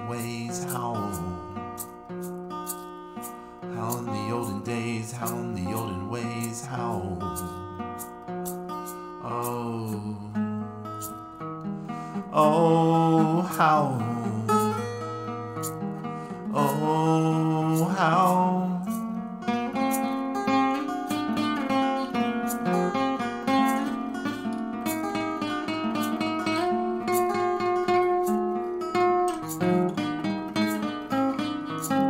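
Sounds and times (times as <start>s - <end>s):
man singing: 0.0s - 1.8s, 3.7s - 7.9s, 9.2s - 11.4s, 12.2s - 15.4s, 16.4s - 19.1s
acoustic guitar strumming: 0.0s - 32.0s
man singing long wavering note: 12.4s - 14.6s.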